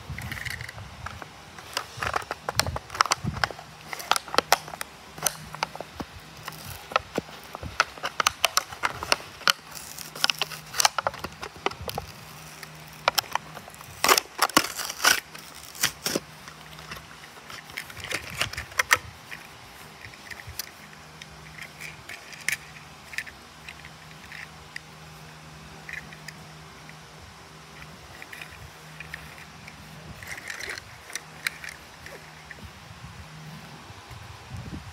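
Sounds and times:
plastic packaging crackling: 0:00.0 - 0:24.7, 0:27.8 - 0:32.6.

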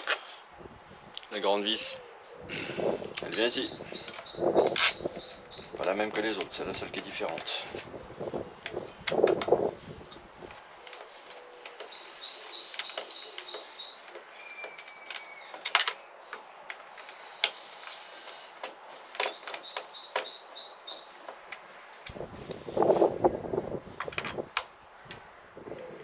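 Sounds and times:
tool clicking and tapping on screws: 0:08.6 - 0:22.2.

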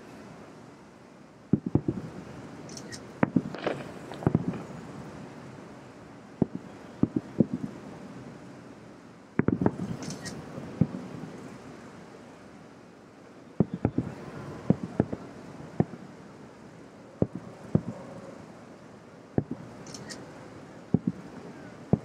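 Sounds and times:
faint hiss: 0:00.0 - 0:22.0
distant firework booms: 0:01.5 - 0:02.1, 0:03.2 - 0:04.8, 0:06.4 - 0:07.8, 0:09.4 - 0:10.0, 0:13.6 - 0:16.0, 0:17.2 - 0:18.0.

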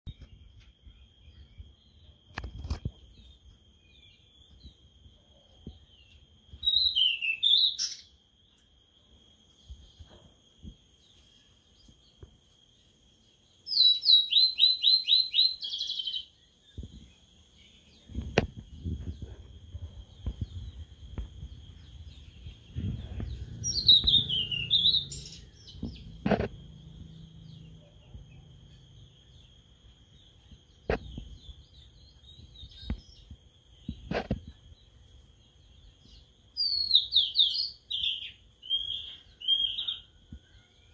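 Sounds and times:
faint high whine: 0:00.1 - 0:40.9
songbird whistling: 0:06.5 - 0:08.2, 0:13.7 - 0:17.0, 0:21.5 - 0:26.0, 0:36.6 - 0:40.2
low rumble: 0:19.0 - 0:27.6.

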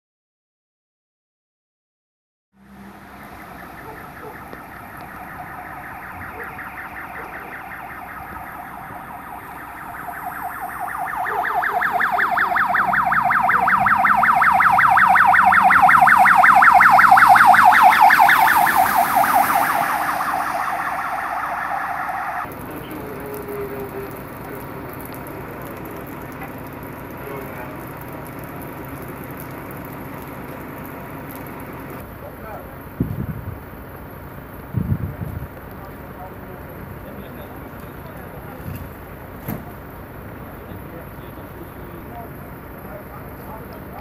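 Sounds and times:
pulsing electronic siren: 0:02.6 - 0:33.6
traffic hiss on wet road: 0:02.6 - 0:44.0.

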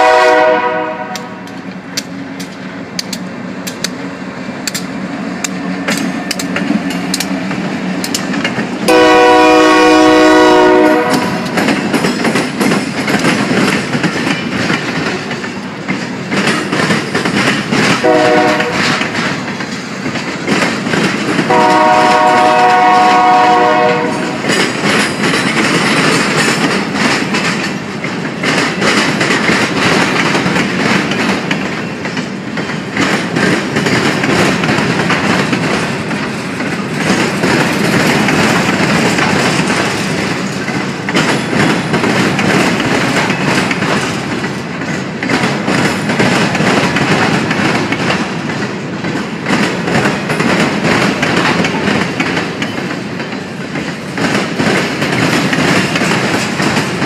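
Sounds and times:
train air horn blasts: 0:00.0 - 0:01.6, 0:08.8 - 0:11.6, 0:18.0 - 0:19.0, 0:21.5 - 0:24.5
wheels clicking over rail joints: 0:00.1 - 0:57.0.

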